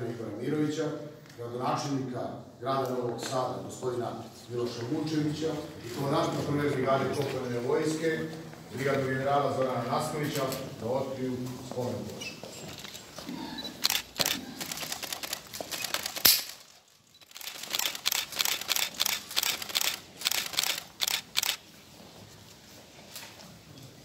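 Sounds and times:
camera shutters clicking: 13.7 - 21.6.

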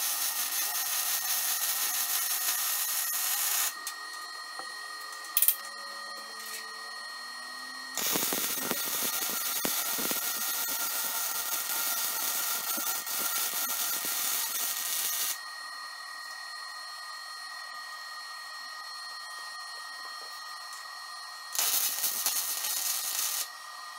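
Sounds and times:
welder arc crackling: 0.0 - 3.8, 8.0 - 15.4, 21.5 - 23.5.

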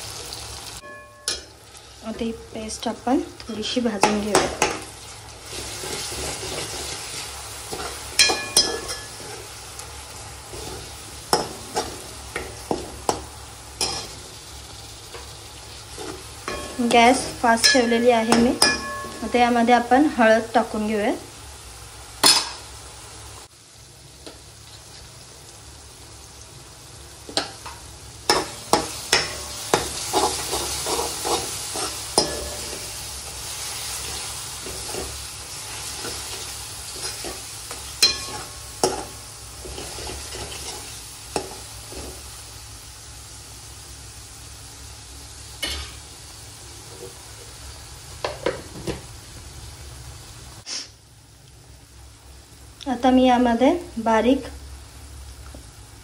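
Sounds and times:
food sizzling in a pan: 0.0 - 56.0
spatula scraping a pan: 5.5 - 9.6, 10.5 - 13.2, 28.3 - 42.2.

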